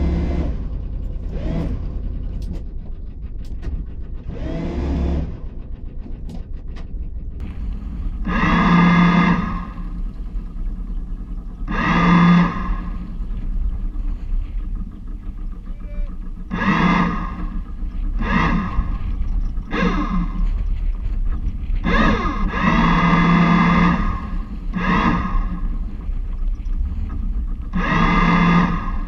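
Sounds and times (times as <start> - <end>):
steady low rumble: 0.0 - 29.0
bow thruster whine: 7.4 - 29.0.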